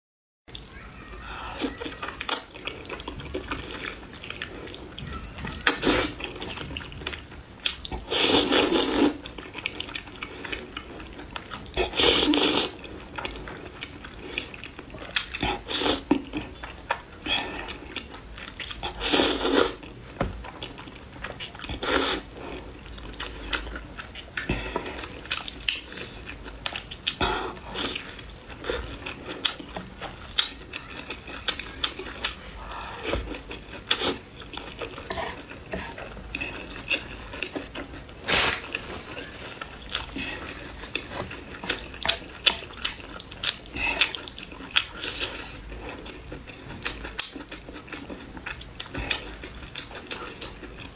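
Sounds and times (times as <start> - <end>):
wet chewing and smacking: 1.7 - 50.9
person slurping noodles: 8.0 - 9.2, 11.8 - 12.9, 18.8 - 19.8, 21.7 - 22.7, 38.2 - 38.8.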